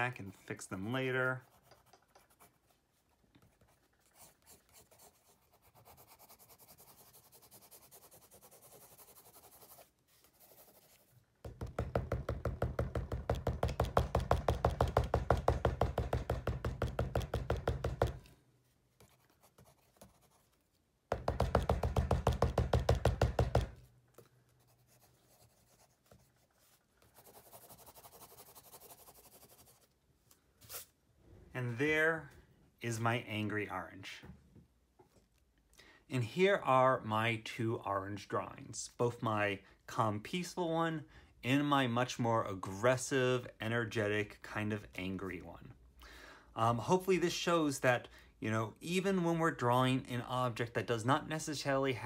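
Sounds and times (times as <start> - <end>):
drawing tool scribbling on paper: 1.4 - 11.1, 24.6 - 29.9.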